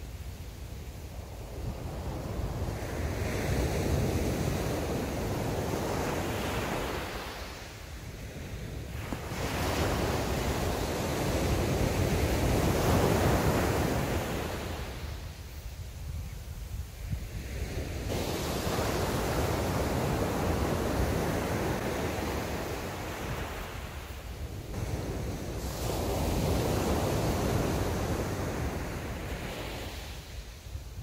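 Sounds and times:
wind on microphone: 0.0 - 31.0
sea surf breaking: 17.9 - 30.4.

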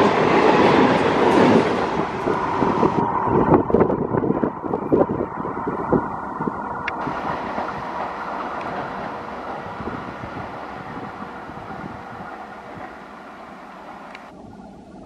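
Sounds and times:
train running drone: 0.0 - 15.0
wheel clicks on rails: 6.8 - 14.3.

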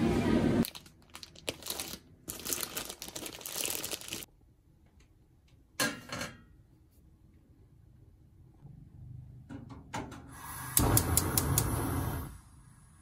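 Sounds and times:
plastic bag crinkling: 0.6 - 4.3.

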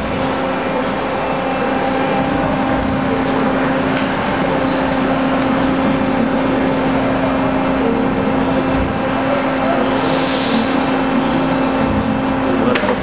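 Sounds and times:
hydraulic power unit drone: 0.0 - 13.0
brief hiss: 10.0 - 10.6.

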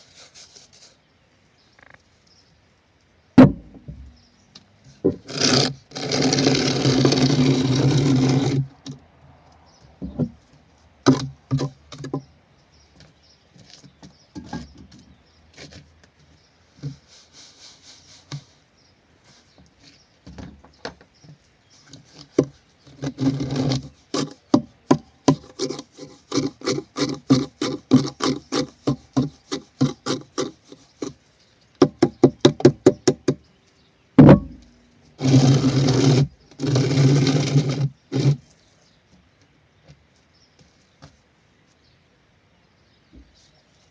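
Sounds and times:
knocks on wood: 3.4 - 4.2, 10.0 - 10.4, 31.8 - 33.4, 34.2 - 34.6
trowel scraping mortar: 5.1 - 8.9, 21.8 - 31.2, 35.2 - 38.5.

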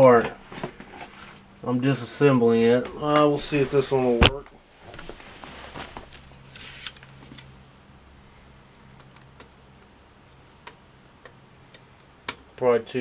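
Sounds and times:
handling rustle: 2.6 - 7.5.

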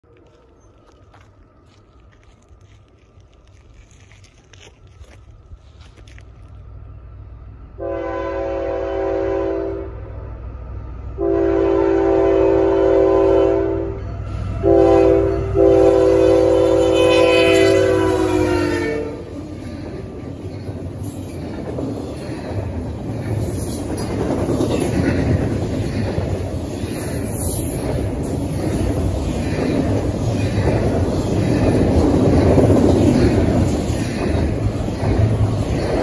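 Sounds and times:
locomotive engine rumble: 0.0 - 36.0
locomotive air horn blasts: 7.8 - 10.0, 11.2 - 19.3
train cars clattering on rails: 17.1 - 36.0.

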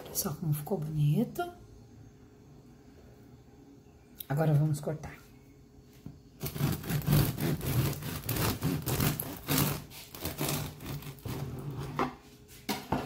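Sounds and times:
bread knife sawing crusty bread: 6.4 - 12.0.

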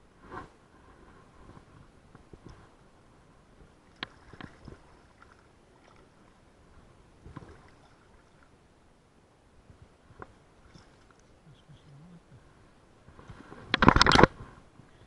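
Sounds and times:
shallow water splashing: 3.8 - 8.6, 10.6 - 11.4
sharp clicks and knocks: 13.7 - 14.4.

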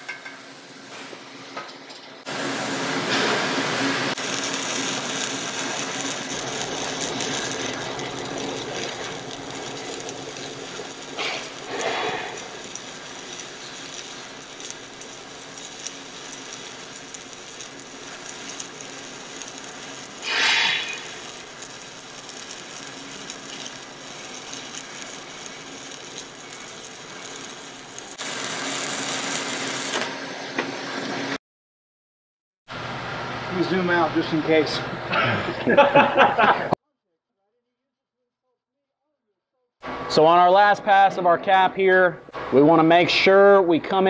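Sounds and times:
arc welding crackling sizzle: 2.2 - 31.4.

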